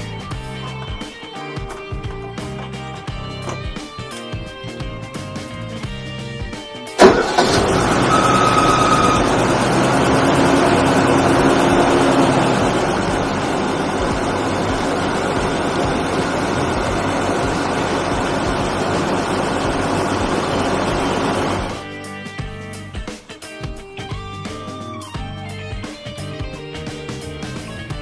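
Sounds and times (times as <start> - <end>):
car engine idling: 7.0 - 21.8.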